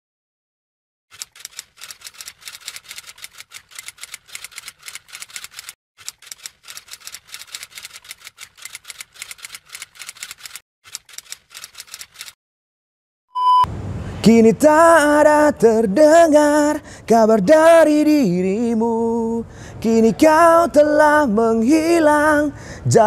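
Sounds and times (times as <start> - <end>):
typewriter keystroke clicks: 1.1 - 12.4.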